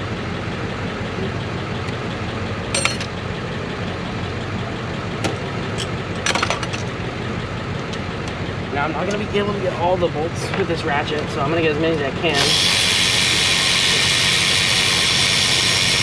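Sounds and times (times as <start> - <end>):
sharp metallic clinks: 2.7 - 3.1
motor droning: 8.2 - 16.0.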